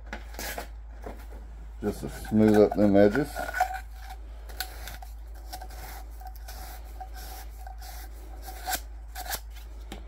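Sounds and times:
sandpaper rubbing on plastic pipe: 4.8s - 9.4s.

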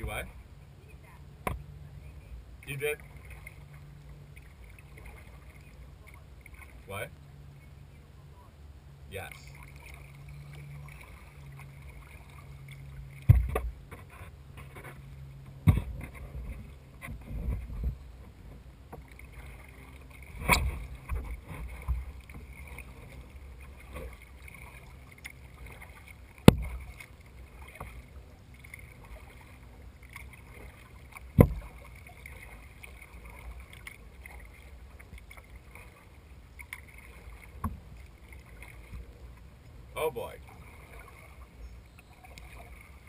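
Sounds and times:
paddle strokes splashing water: 1.4s - 7.9s, 9.2s - 43.0s
sharp knocks: 31.4s - 31.7s.

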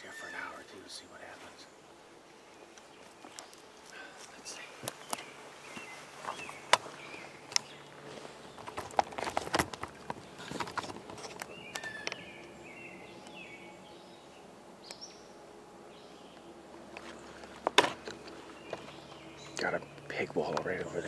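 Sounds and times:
camera handling knocks and rustles: 8.5s - 12.2s, 17.0s - 19.0s.

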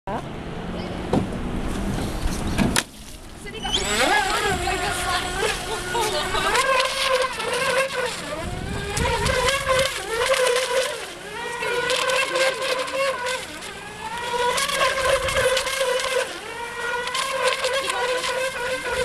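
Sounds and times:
wind buffeting microphone: 1.2s - 7.4s, 8.2s - 10.5s, 14.7s - 15.8s
rc boat motor whining: 3.2s - 19.0s.

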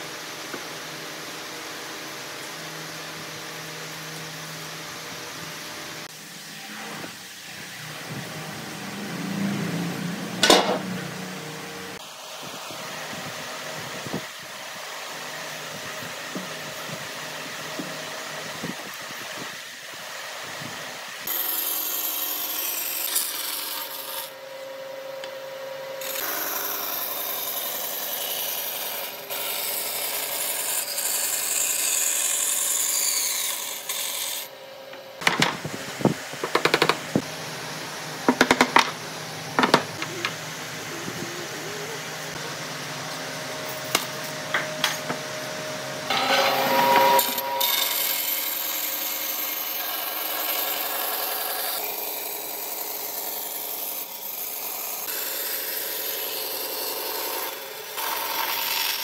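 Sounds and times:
band saw cutting wood: 21.2s - 24.4s, 26.0s - 35.2s, 36.0s - 59.0s.

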